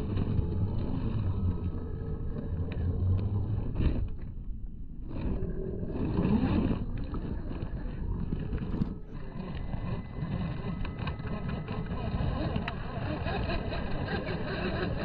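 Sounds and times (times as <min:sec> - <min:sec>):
rc car electric motor whining: 0:05.1 - 0:15.0.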